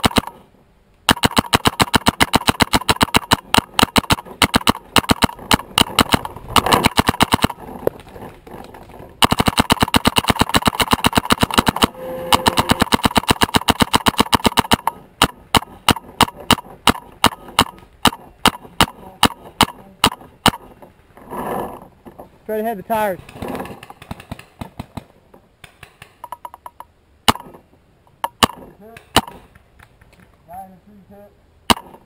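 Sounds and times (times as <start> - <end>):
paintball marker firing: 0.0 - 0.4, 1.1 - 7.6, 9.2 - 20.8, 23.3 - 26.4, 28.2 - 29.6, 31.7 - 32.0.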